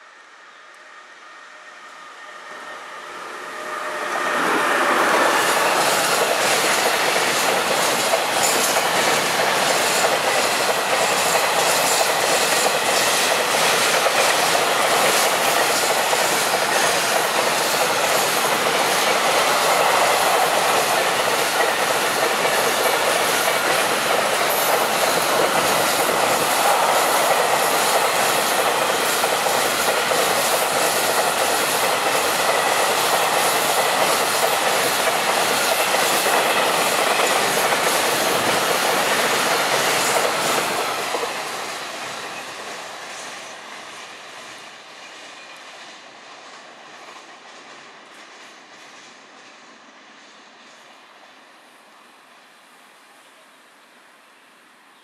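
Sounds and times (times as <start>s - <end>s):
train wheels rumbling on rails: 0.0s - 51.5s
wheels clacking over rail joints: 4.1s - 43.3s.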